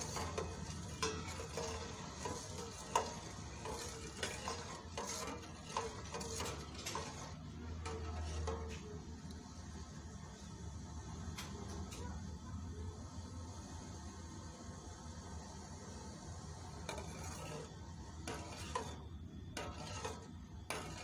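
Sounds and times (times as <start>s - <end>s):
metal spoon stirring in metal pot: 0.0s - 9.4s, 16.6s - 21.0s.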